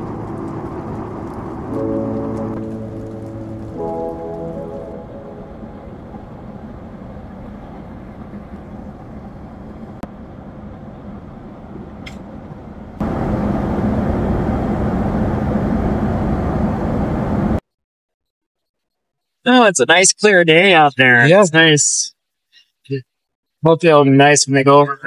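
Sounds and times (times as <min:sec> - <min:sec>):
airliner cabin engine rush: 0:00.0 - 0:17.6.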